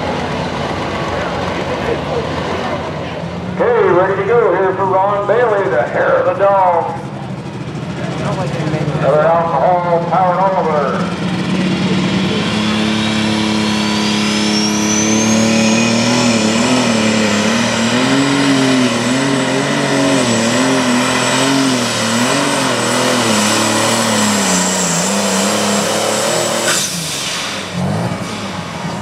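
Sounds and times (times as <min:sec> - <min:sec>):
tractor diesel engine at full power: 0:00.0 - 0:29.0
turbo whine: 0:09.0 - 0:29.0.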